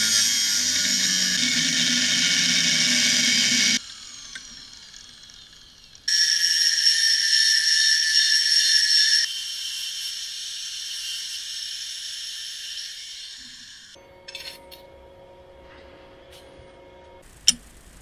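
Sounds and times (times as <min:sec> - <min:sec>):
angle grinder cutting steel: 0:00.0 - 0:14.0.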